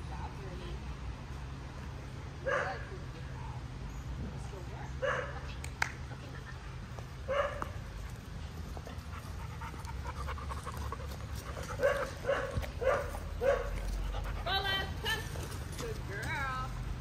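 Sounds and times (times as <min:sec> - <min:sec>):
dog barking: 0:02.4 - 0:02.8, 0:05.0 - 0:05.4, 0:07.3 - 0:07.7, 0:11.8 - 0:13.8
dogs panting: 0:06.2 - 0:17.0.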